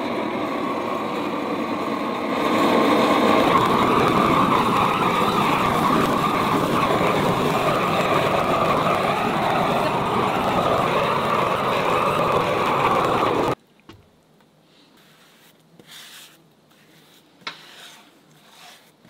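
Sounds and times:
propane torch roaring: 0:00.0 - 0:13.6.

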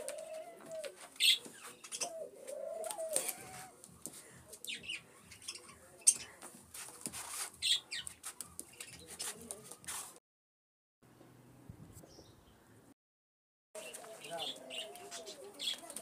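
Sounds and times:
chicken calling: 0:00.0 - 0:03.8
clicks and scuffs: 0:06.1 - 0:10.2.

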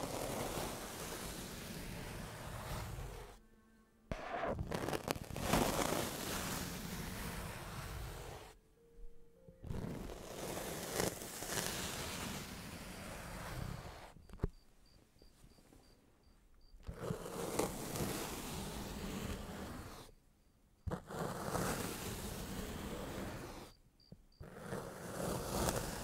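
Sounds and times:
knife scraping through sand: 0:00.0 - 0:03.4, 0:04.1 - 0:08.6, 0:09.7 - 0:14.2, 0:16.9 - 0:20.2, 0:20.9 - 0:23.8, 0:24.4 - 0:26.0.

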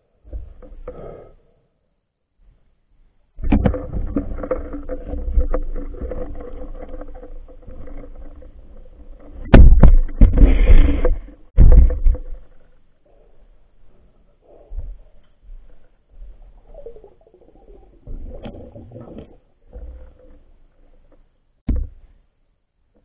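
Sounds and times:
underwater thumps: 0:03.4 - 0:12.7, 0:14.7 - 0:20.1, 0:21.6 - 0:22.2
muffled underwater knocking and rubbing: 0:03.4 - 0:22.0.

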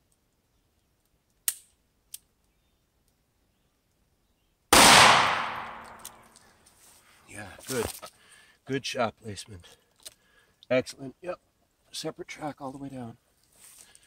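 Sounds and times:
revolver gunshot with echo: 0:04.7 - 0:06.0.

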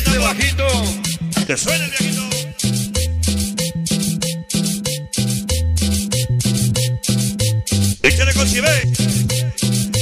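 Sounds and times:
bass line: 0:00.0 - 0:10.0
scraped percussion rhythm: 0:00.0 - 0:10.0.

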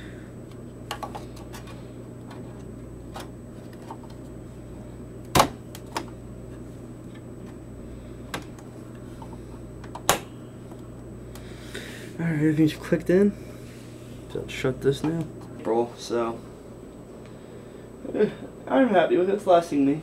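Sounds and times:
graphics card snapping into slot: 0:05.3 - 0:06.1.

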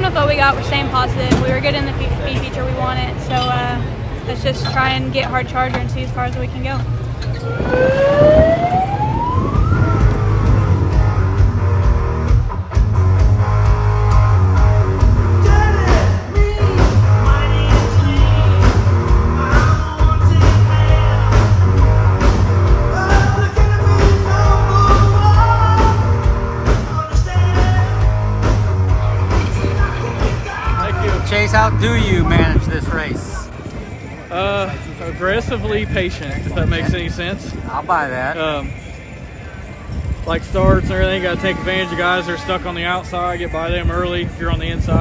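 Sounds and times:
rock music: 0:06.9 - 0:33.6
rising whine: 0:07.2 - 0:15.5.

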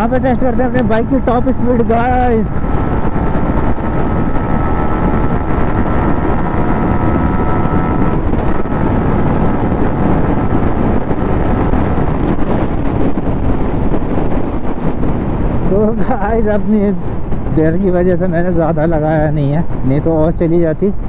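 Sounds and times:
motorcycle engine at high revs: 0:00.0 - 0:15.6
wind rushing on microphone: 0:00.0 - 0:21.0.

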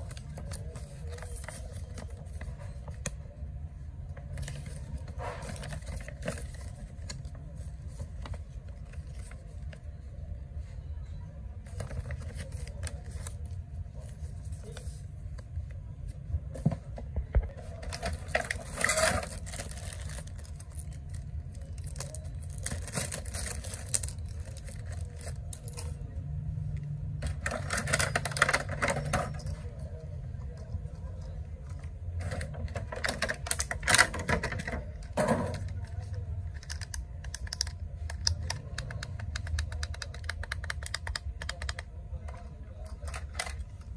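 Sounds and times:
steady low hum: 0:00.0 - 0:43.9
plastic bag crinkling: 0:18.2 - 0:25.5.

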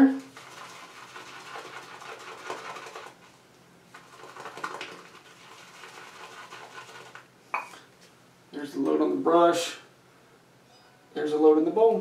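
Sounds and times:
shaving brush swishing lather: 0:04.2 - 0:07.2.

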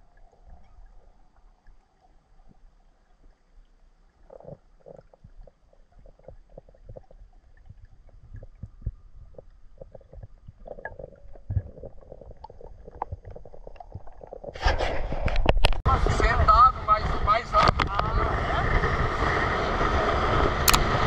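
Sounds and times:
underwater gurgles: 0:00.0 - 0:21.0
underwater clicks and knocks: 0:04.3 - 0:15.9, 0:17.6 - 0:18.1.

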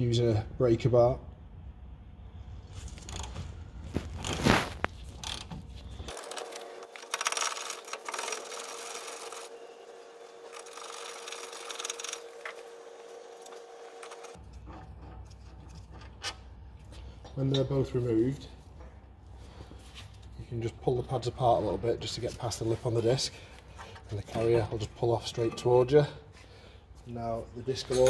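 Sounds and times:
socket ratchet clicking and scraping: 0:10.5 - 0:12.2.

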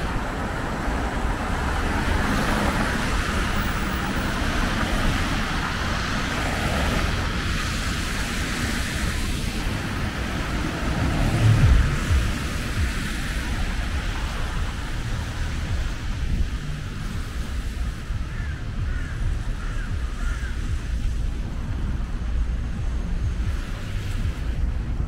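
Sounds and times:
car engines rumbling: 0:00.0 - 0:25.0
tyre hiss on wet street: 0:00.0 - 0:25.0
bird calls: 0:18.2 - 0:20.9.

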